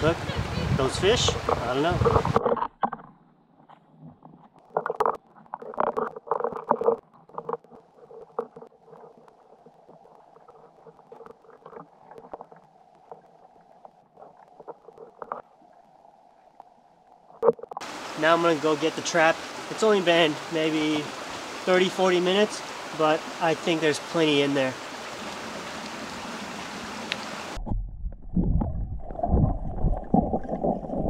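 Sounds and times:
muffled underwater river murmur: 0:00.0 - 0:02.6
underwater clicks and knocks: 0:01.2 - 0:15.5, 0:17.4 - 0:17.9.

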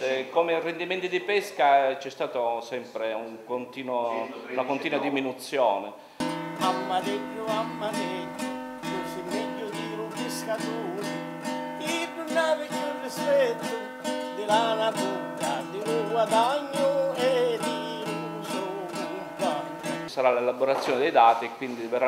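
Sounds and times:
strummed classical guitar: 0:06.2 - 0:20.1
man singing: 0:06.5 - 0:20.1.

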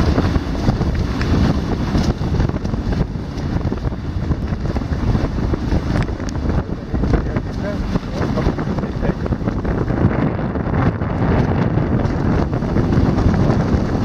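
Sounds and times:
water rushing past hulls: 0:00.0 - 0:14.0
wind buffeting microphone: 0:00.0 - 0:14.0.

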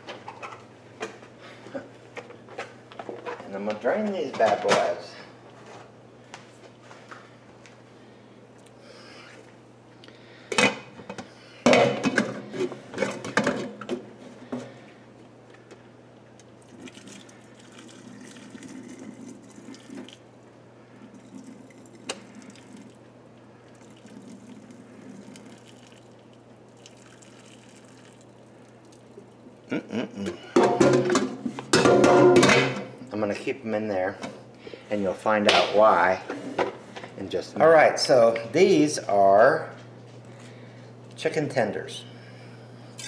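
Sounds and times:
water pouring into sink: 0:16.6 - 0:20.2, 0:21.1 - 0:23.0, 0:23.7 - 0:28.4
metal pot and lid clanking: 0:30.6 - 0:32.8.

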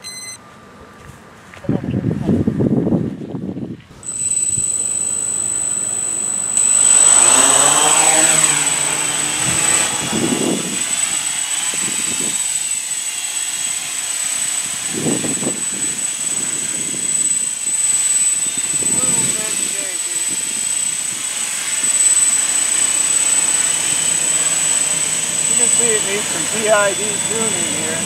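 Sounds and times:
quadcopter motors buzzing whine: 0:00.0 - 0:00.4, 0:02.0 - 0:28.0.

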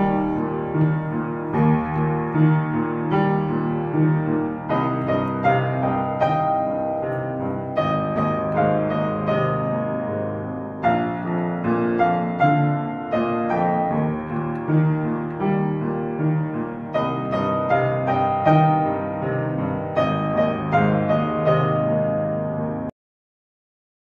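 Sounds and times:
slow piano music: 0:00.0 - 0:22.9.

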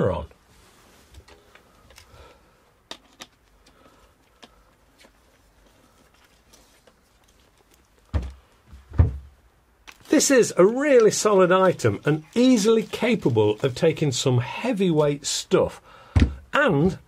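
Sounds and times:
dull knocks: 0:08.1 - 0:09.3, 0:16.2 - 0:16.4.

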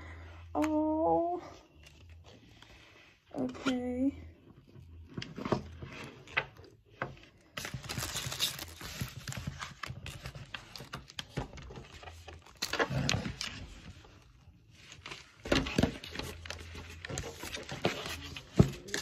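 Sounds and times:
plastic bag crinkling: 0:07.6 - 0:10.8.

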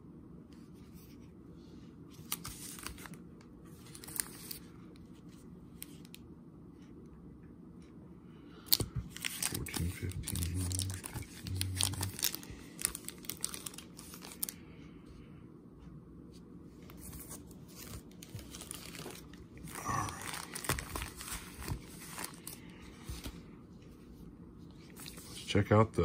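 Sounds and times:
foil wrappers crinkling: 0:08.7 - 0:14.6, 0:17.2 - 0:22.8.

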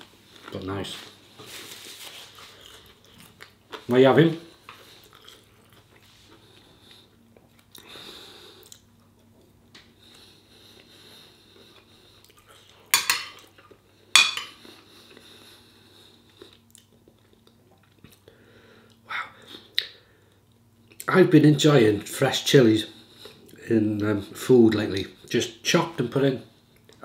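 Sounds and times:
quiet chewing: 0:01.4 - 0:03.9, 0:04.5 - 0:14.0, 0:14.6 - 0:21.1
cutlery clinking on a plate: 0:12.9 - 0:13.4, 0:14.2 - 0:14.6.

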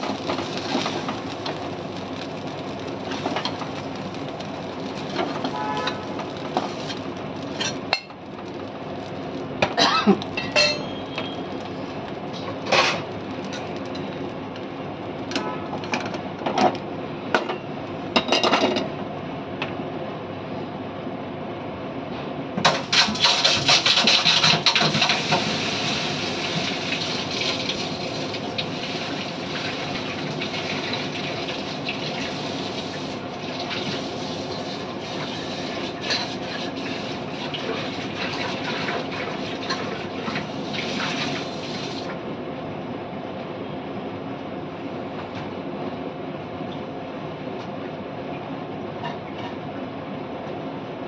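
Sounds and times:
water sizzling in hot pan: 0:00.0 - 0:09.6, 0:22.7 - 0:42.1.

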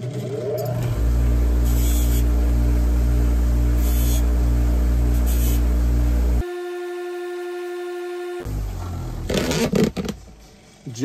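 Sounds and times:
bench grinder humming: 0:00.8 - 0:09.4.

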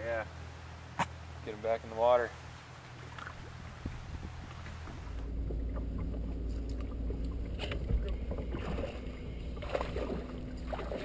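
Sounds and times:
boat engine rumble: 0:00.0 - 0:11.0
faint steady hum: 0:00.0 - 0:11.0
water splashing against hull: 0:02.8 - 0:11.0.

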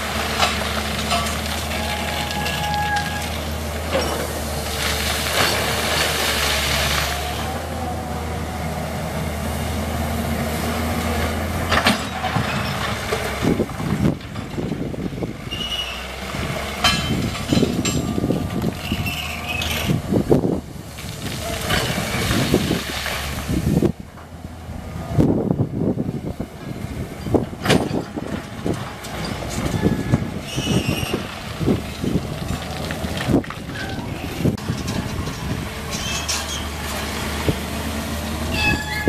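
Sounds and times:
gravel and rocks clattering: 0:00.0 - 0:07.5, 0:11.0 - 0:15.4, 0:16.8 - 0:23.9, 0:27.2 - 0:39.0
excavator diesel engine running: 0:00.0 - 0:39.0
brief squeals: 0:15.5 - 0:16.0, 0:18.8 - 0:19.9, 0:29.8 - 0:31.2, 0:38.5 - 0:39.0.

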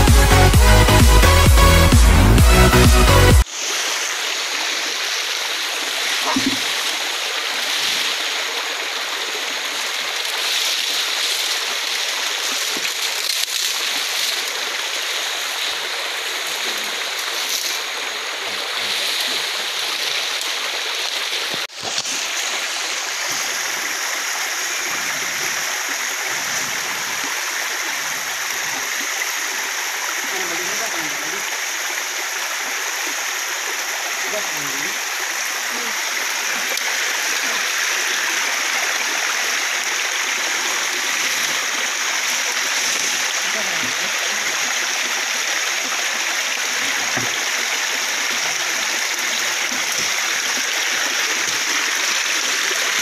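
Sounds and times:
stream running over rocks: 0:03.4 - 0:53.0.

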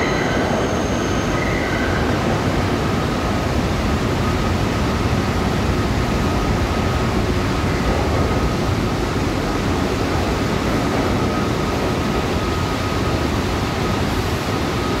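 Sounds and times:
faint high squeal: 0:00.0 - 0:02.3
subway trains rumbling: 0:00.0 - 0:15.0.

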